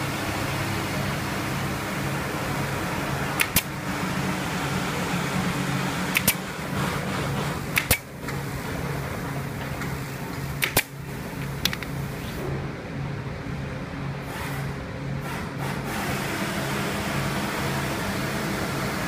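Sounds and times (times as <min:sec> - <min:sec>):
steady low hum: 0:00.0 - 0:15.9
staple gun firing: 0:03.4 - 0:03.7, 0:06.1 - 0:06.4, 0:07.7 - 0:08.1, 0:10.6 - 0:11.0.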